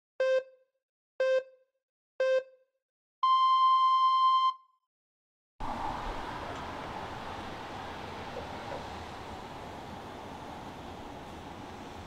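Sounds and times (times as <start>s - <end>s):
electronic countdown beeps: 0.2s - 0.6s, 1.2s - 2.6s, 3.2s - 4.7s.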